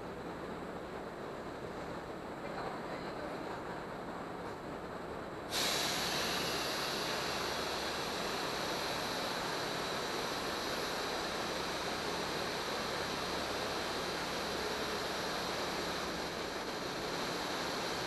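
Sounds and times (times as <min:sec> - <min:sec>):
air hiss: 0:05.5 - 0:18.0
air pump rushing: 0:05.5 - 0:18.0.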